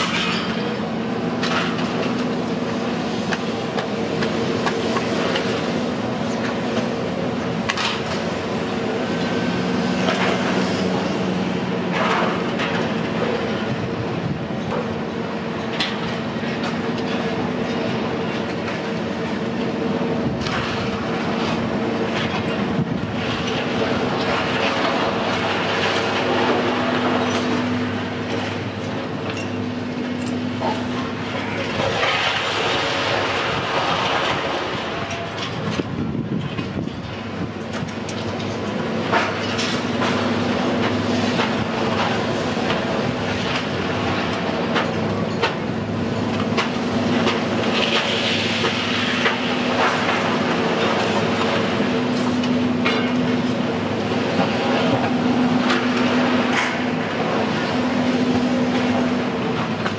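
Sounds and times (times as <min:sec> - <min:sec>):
mechanical hum with rumble: 0:00.0 - 0:59.9.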